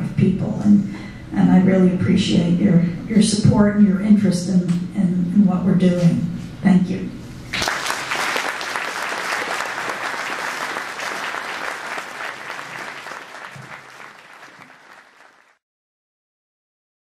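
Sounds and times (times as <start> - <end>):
audience applauding: 7.5 - 15.6.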